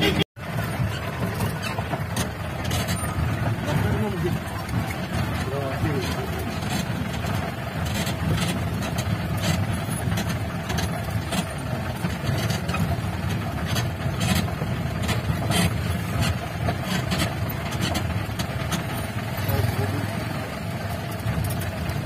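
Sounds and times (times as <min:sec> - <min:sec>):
jeep engine running under load: 0:00.0 - 0:22.0
vehicle knocking and clattering: 0:00.0 - 0:22.0.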